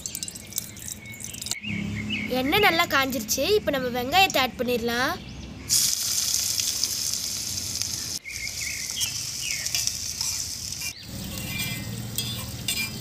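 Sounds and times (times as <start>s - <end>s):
onion sizzling in hot oil: 5.7s - 13.0s
spoon scraping a pan: 9.0s - 13.0s.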